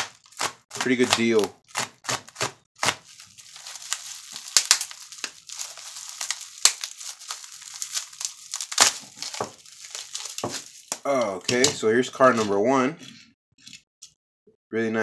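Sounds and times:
bubble wrap crinkling: 0.0 - 11.6.

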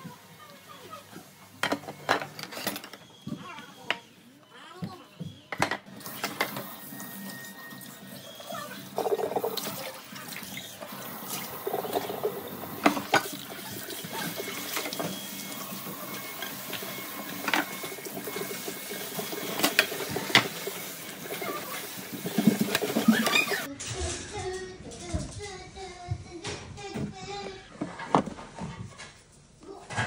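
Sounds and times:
pots clinking against sink: 1.6 - 3.1, 9.0 - 24.4.

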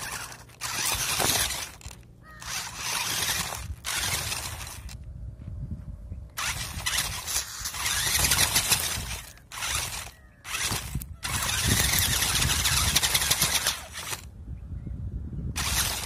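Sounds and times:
tyres crunching on gravel: 0.0 - 5.0, 6.4 - 14.2
toy truck drivetrain whine: 0.0 - 5.1, 6.4 - 14.4, 15.5 - 16.0.

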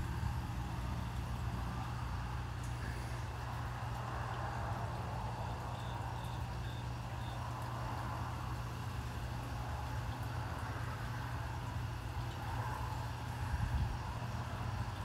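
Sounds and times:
model train engine rumble: 0.0 - 4.2.

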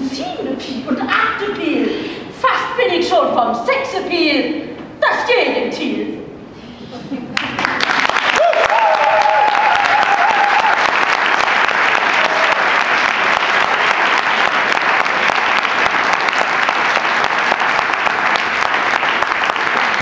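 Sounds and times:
audience applauding: 7.4 - 20.0.

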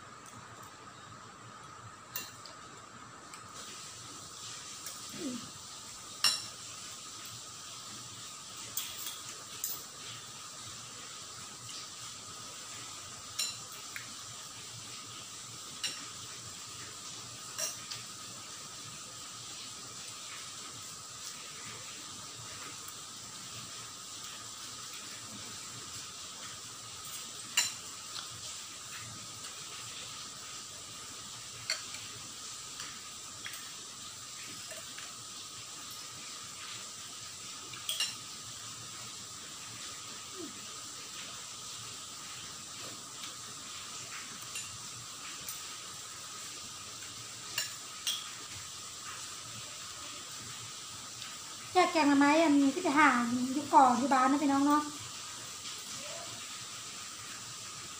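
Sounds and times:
steady background hiss: 0.0 - 57.9
cutlery clinking on ceramic bowls: 6.2 - 6.5, 8.8 - 9.9, 13.4 - 13.7, 37.8 - 38.2, 47.5 - 48.4.

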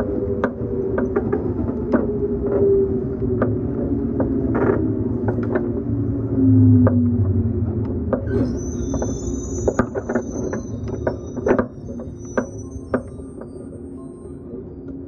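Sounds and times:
train running rumble: 0.0 - 14.0
motor and gear whine: 0.0 - 15.0
high brake squeal: 8.2 - 14.9.

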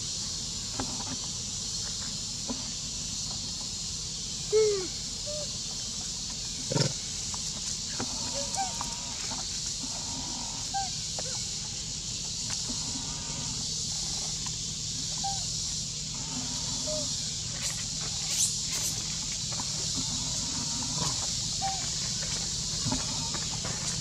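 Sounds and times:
high-pitched insect drone: 0.0 - 24.0
chirp-like animal calls: 4.5 - 5.6, 8.0 - 9.2, 9.9 - 11.5, 16.1 - 19.0, 20.0 - 21.9.

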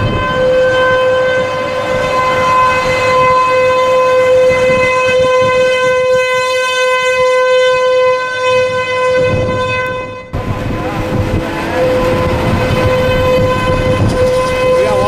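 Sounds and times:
warning siren steady tone: 0.0 - 15.0.

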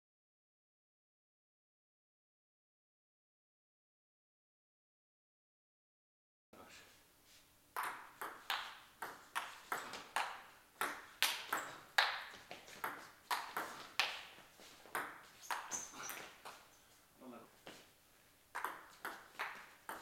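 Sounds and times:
table tennis ball clicks: 7.8 - 14.3, 14.9 - 16.3, 18.5 - 20.0.

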